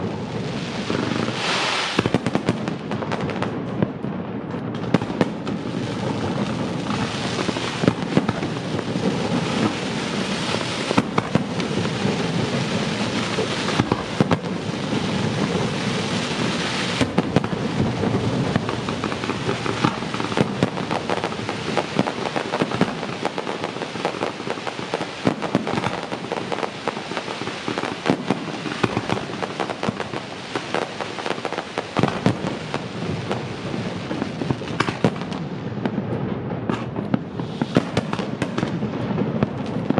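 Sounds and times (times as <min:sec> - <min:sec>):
fireworks bangs: 0:00.0 - 0:39.9
fireworks crackling: 0:00.0 - 0:39.9.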